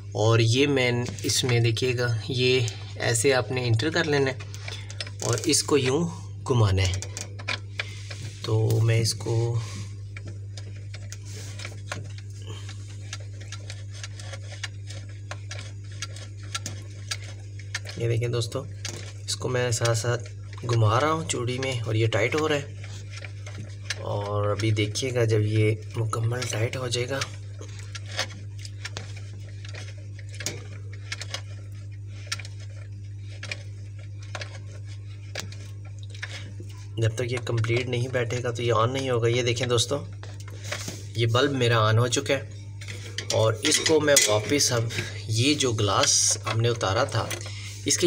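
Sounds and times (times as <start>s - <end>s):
steady low hum: 0.0s - 48.0s
bulb base clicking and scraping: 6.8s - 25.1s, 25.8s - 38.4s.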